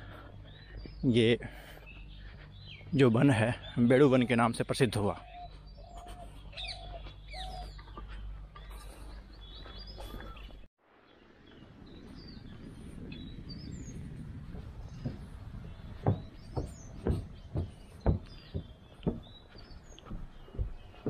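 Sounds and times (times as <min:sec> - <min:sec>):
outdoor background hum: 0:00.0 - 0:10.7, 0:11.4 - 0:21.0
birds chirping: 0:00.0 - 0:21.0
sharp knocks: 0:16.0 - 0:19.3.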